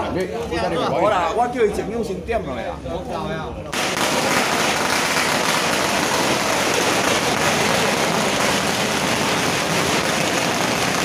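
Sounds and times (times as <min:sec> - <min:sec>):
firecrackers crackling: 0:03.7 - 0:11.0.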